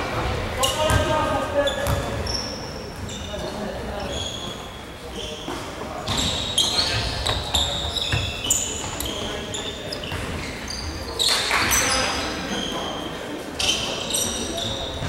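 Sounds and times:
knocks echoing in hall: 0:00.0 - 0:04.6
voices echoing in hall: 0:00.0 - 0:15.0
shoes squeaking on hardwood floor: 0:00.6 - 0:11.4, 0:13.6 - 0:15.0.

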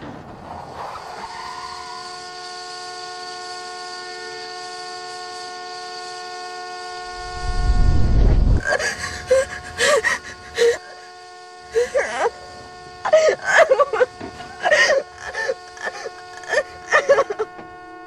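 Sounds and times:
loud low rumble: 0:07.1 - 0:08.8
girl gasping and whimpering: 0:08.6 - 0:11.0, 0:11.8 - 0:12.3, 0:13.1 - 0:17.5.

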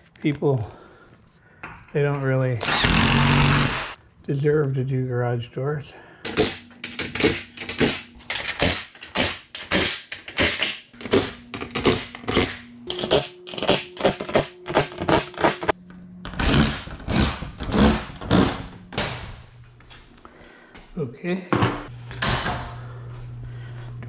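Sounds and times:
impact driver hammering bursts: 0:02.6 - 0:04.0
tool motor hum: 0:02.6 - 0:04.0, 0:10.4 - 0:18.9.

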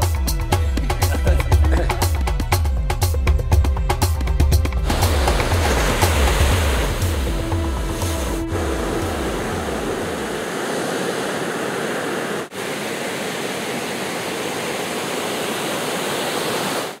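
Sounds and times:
waves breaking on rocky shore: 0:04.8 - 0:17.0.

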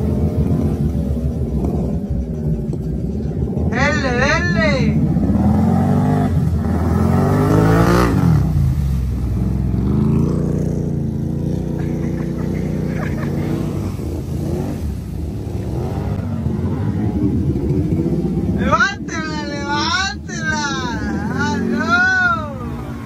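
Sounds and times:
atv engines revving: 0:00.0 - 0:23.0
water splashing from tires: 0:00.0 - 0:23.0.

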